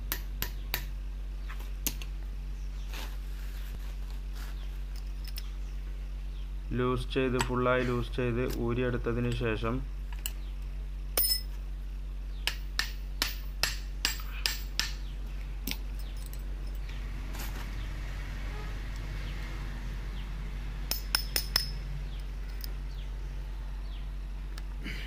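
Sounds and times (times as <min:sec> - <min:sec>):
metal clinks and knocks: 0:04.9 - 0:05.5, 0:11.2 - 0:11.6, 0:15.6 - 0:17.0, 0:20.9 - 0:22.8.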